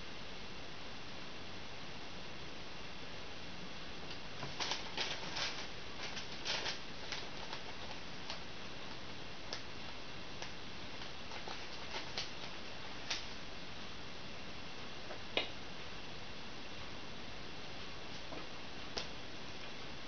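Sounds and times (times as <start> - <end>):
steady hiss: 0.0 - 20.0
paper receipt rustling and crinkling: 4.4 - 13.4.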